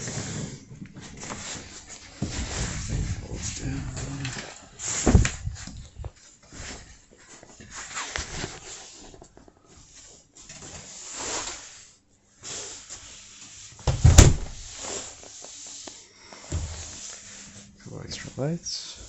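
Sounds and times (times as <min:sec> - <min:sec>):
rustling handling noises: 0:00.0 - 0:13.8.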